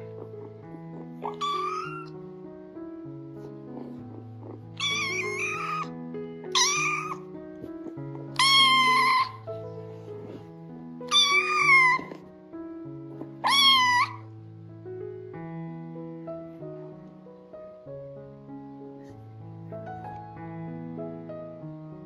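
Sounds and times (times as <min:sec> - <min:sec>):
soft piano music: 0:00.0 - 0:22.0
kitten meowing: 0:01.0 - 0:02.2, 0:04.1 - 0:05.9, 0:06.5 - 0:07.3, 0:07.9 - 0:09.5, 0:11.1 - 0:12.3, 0:13.2 - 0:14.3.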